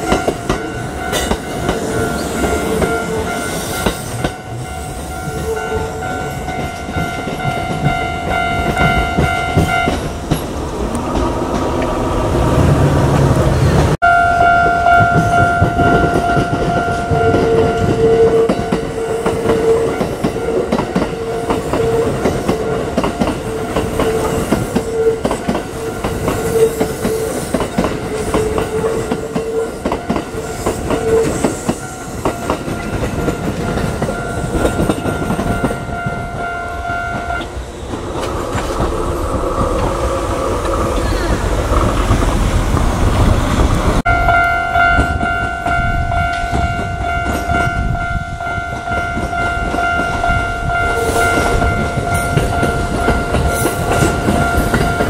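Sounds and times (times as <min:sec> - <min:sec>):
high ringing tones: 0:00.0 - 0:10.6, 0:14.0 - 0:37.6, 0:44.0 - 0:55.0
train rumble: 0:00.0 - 0:55.0.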